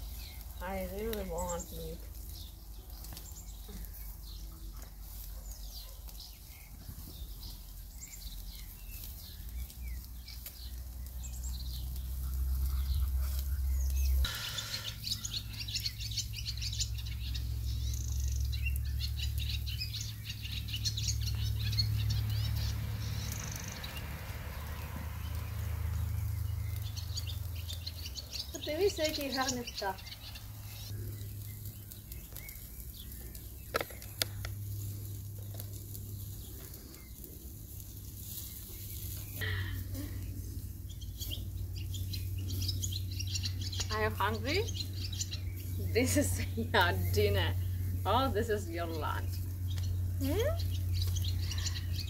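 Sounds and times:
small birds chirping: 0.0 - 52.0
low steady rumble: 15.1 - 28.4, 30.1 - 52.0.

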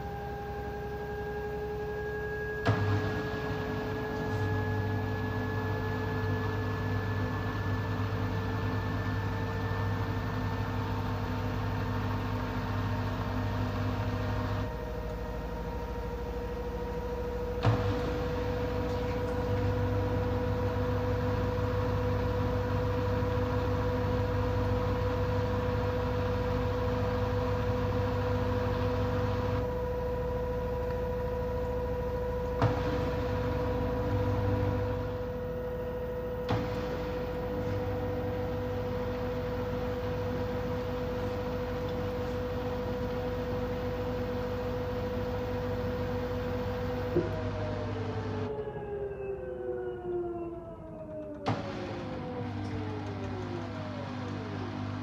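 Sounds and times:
washing machine spinning: 0.0 - 48.9, 51.4 - 55.0
click: 52.6 - 53.6.

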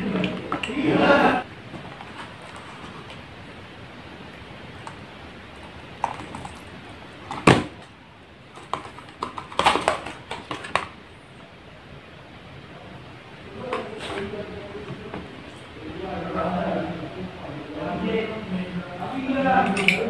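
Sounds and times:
carton crackling: 0.0 - 11.6.

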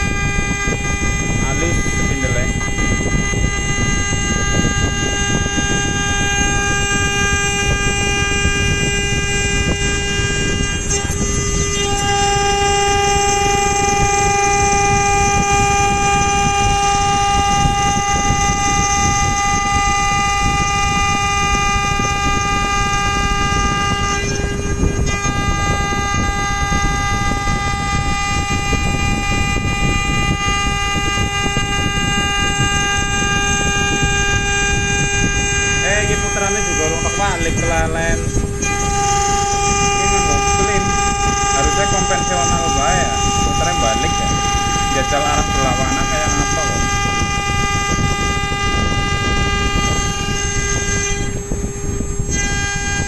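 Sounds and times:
router spindle motor whining: 0.0 - 53.0
end mill cutting aluminium: 21.1 - 51.5.

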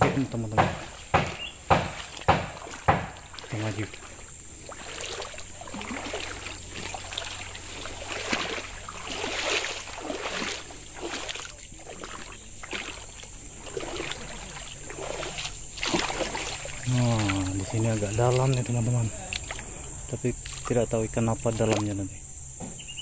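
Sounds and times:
sharp knock: 0.0 - 3.2
footsteps wading through water: 0.0 - 22.1
water sloshing and splashing: 0.0 - 22.8
high insect drone: 0.0 - 23.0.

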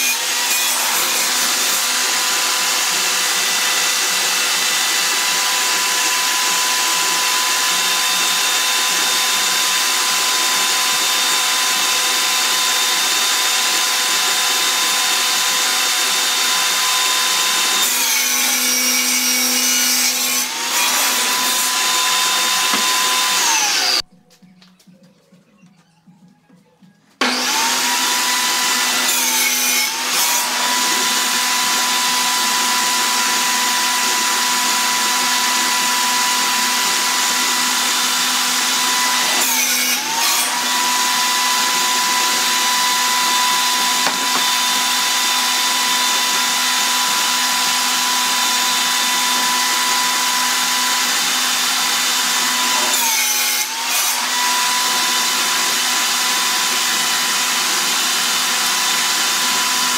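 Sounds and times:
table saw whine: 0.0 - 24.0, 27.2 - 59.9
table saw switching on: 27.2 - 53.2.

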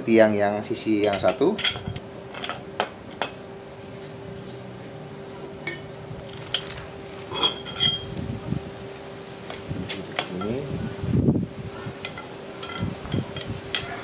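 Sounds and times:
faint steady hum: 0.0 - 14.0
metal poles clinking: 1.0 - 3.4, 5.6 - 8.2, 9.4 - 10.7, 12.0 - 14.0.

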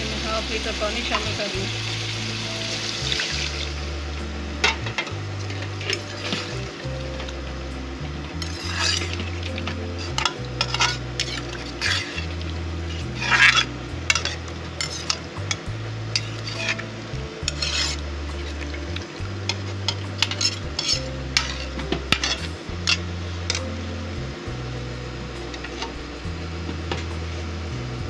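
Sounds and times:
metal ladle scraping a pot: 4.6 - 7.4, 8.1 - 24.1, 25.4 - 26.0.

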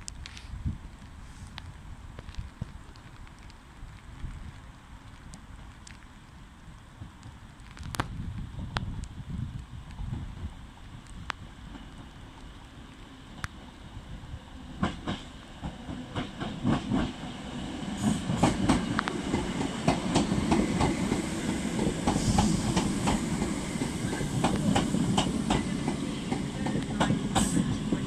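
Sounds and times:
train rumble: 7.0 - 28.0
train wheels clicking over joints: 14.8 - 28.0.

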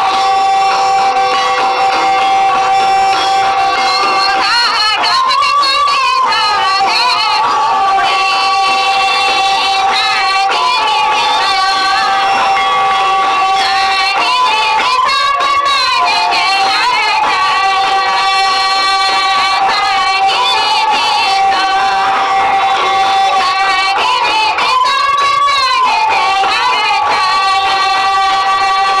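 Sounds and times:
song with wavering held notes: 0.0 - 29.0
sustained accompaniment: 0.0 - 29.0.

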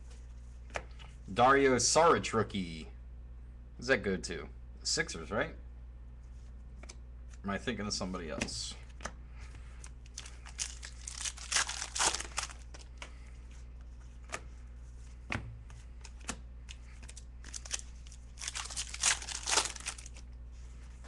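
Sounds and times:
wrappers crinkling and tearing: 10.0 - 13.0, 16.0 - 20.3.

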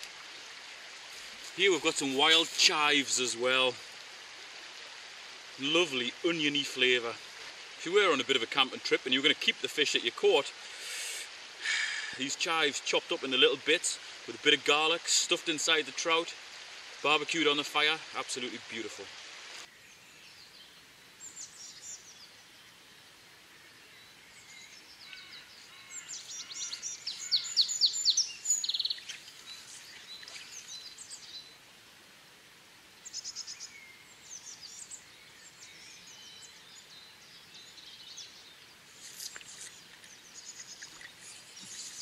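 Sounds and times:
faint background hiss: 0.0 - 42.0
songbirds chirping and trilling: 19.6 - 31.7, 33.0 - 42.0.

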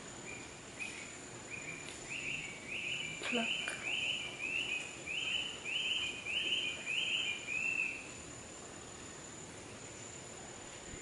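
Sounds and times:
high-pitched insect whine: 0.0 - 11.0
chirping call: 0.3 - 8.1.

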